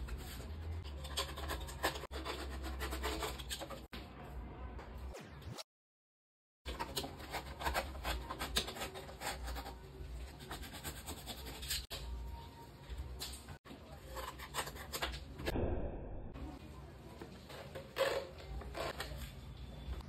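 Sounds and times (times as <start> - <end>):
utility knife cutting cardboard: 6.7 - 9.8.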